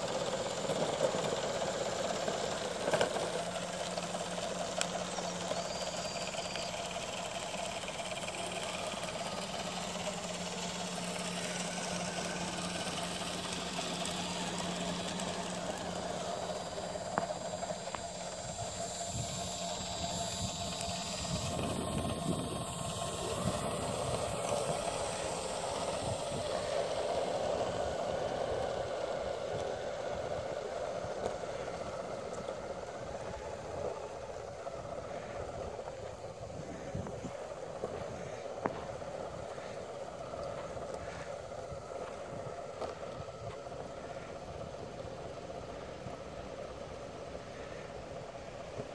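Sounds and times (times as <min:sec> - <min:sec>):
snow hiss: 0:00.0 - 0:48.9
toy snowblower hum and whir: 0:00.0 - 0:48.9.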